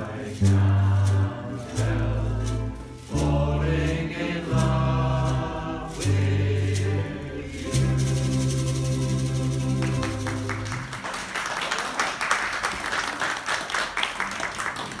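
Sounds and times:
ukulele band chord: 0.0 - 11.0
audience applause: 9.7 - 15.0.

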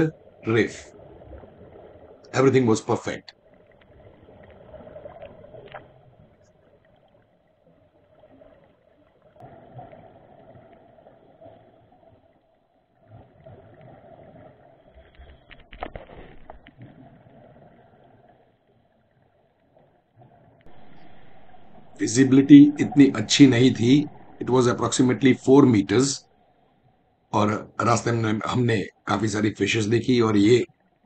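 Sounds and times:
exhaled bubbles: 20.4 - 26.5.

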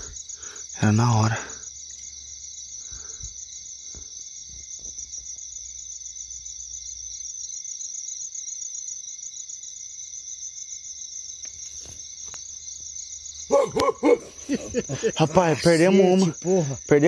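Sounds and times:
crickets trilling: 0.0 - 17.0.

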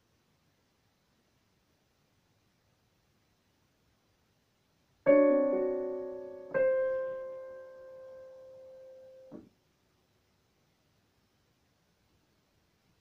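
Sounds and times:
digital piano chords: 5.1 - 9.4.

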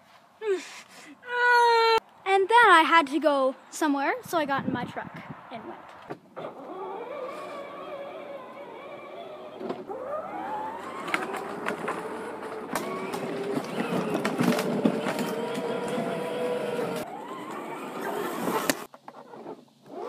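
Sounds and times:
toy electric motor whining: 6.4 - 18.9
plastic body knocking and rattling: 10.9 - 16.2.

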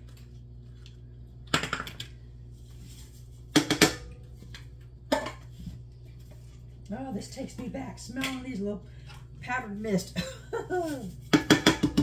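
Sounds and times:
exhaust fan humming: 0.0 - 12.0
canister knocking against metal pot: 11.3 - 12.0.

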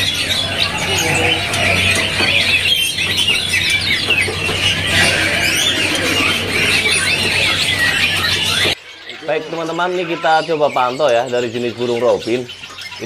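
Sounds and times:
songbirds chirping and trilling: 0.0 - 13.0.

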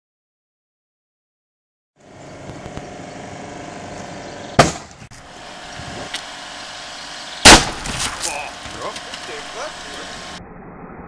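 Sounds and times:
engine hum: 2.0 - 11.0
airbag firing bang: 4.6 - 4.9, 7.4 - 8.2.

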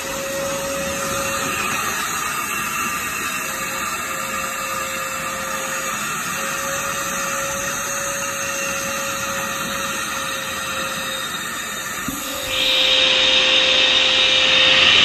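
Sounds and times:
wet vacuum sucking water: 12.0 - 15.0.

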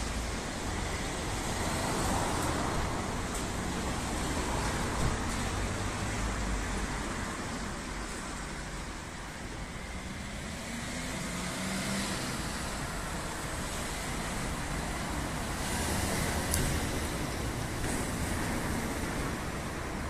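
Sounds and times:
road traffic: 0.0 - 20.0.

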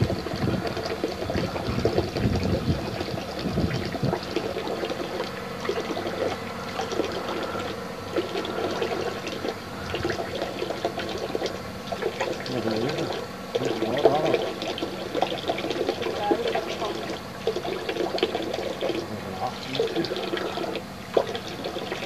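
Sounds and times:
rushing crackling microphone noise: 0.0 - 4.2
farm vehicle engine running: 0.0 - 22.0.

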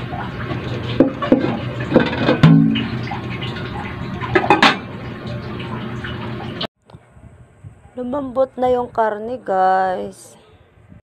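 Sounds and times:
metal lid clattering: 1.0 - 3.0, 4.3 - 4.9.

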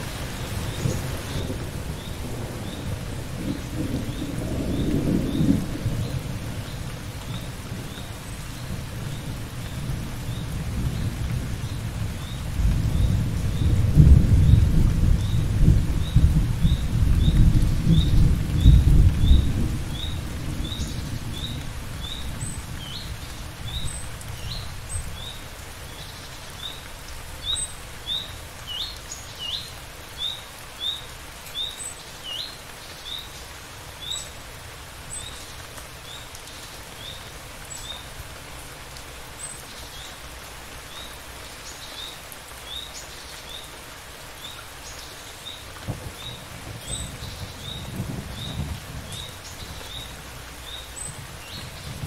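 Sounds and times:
thunder rumbling: 0.0 - 8.0, 8.6 - 23.8, 45.8 - 52.0
steady rain: 0.0 - 52.0.

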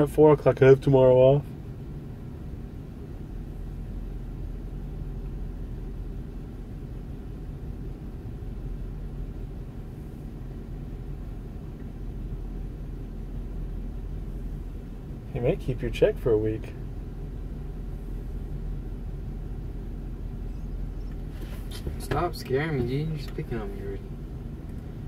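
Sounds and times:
van engine idling: 0.0 - 25.0.

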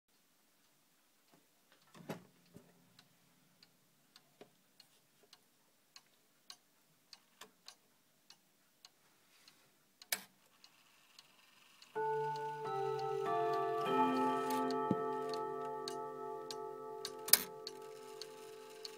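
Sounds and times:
clock ticking faintly: 0.1 - 18.9
loud clock click: 11.9 - 18.9
hammers striking chime rods: 12.0 - 18.9.

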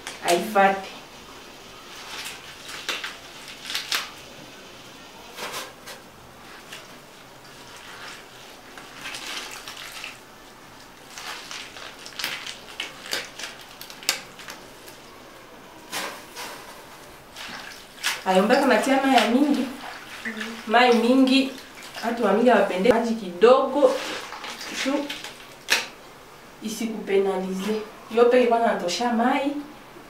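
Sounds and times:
wet leaves crunching and rustling: 1.8 - 4.2, 6.4 - 15.0, 23.8 - 25.9.

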